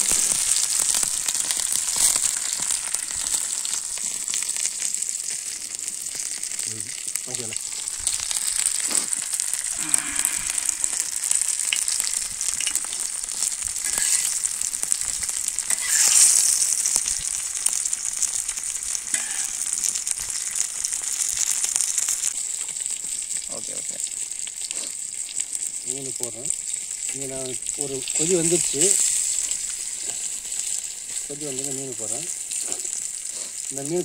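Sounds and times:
fish sizzling in oil: 0:00.0 - 0:34.0.

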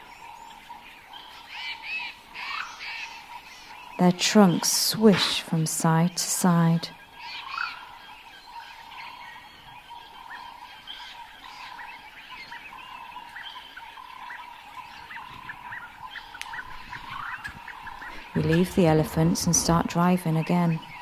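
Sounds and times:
short chirping calls: 0:06.9 - 0:21.0.

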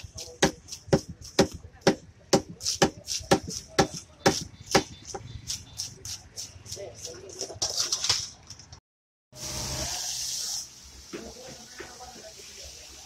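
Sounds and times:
cleaver chopping on wooden block: 0:00.3 - 0:06.5.

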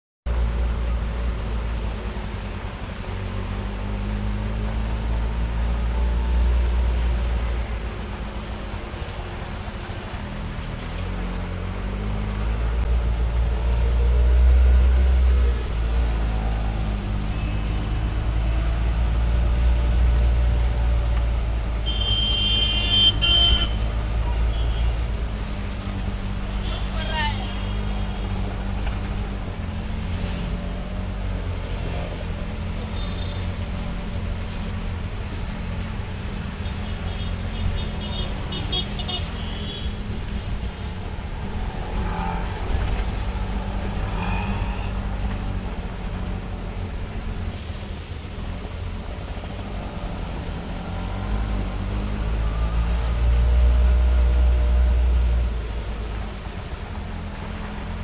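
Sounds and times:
traffic on wet road: 0:00.3 - 0:58.0
car horn toots: 0:21.8 - 0:23.8.

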